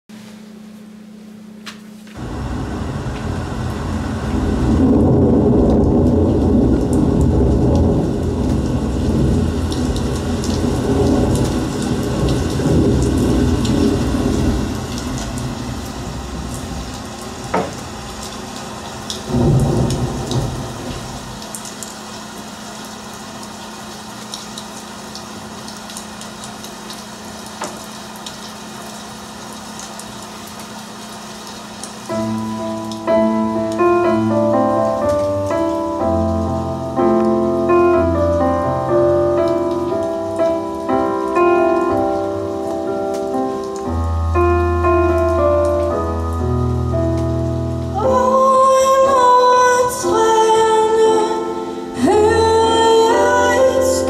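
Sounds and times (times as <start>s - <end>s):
steady low hum: 0.3s - 23.2s
rain: 1.6s - 54.0s
sharp thunder crack: 2.2s - 18.2s, 19.2s - 21.4s
thunder rumbling: 2.2s - 21.8s.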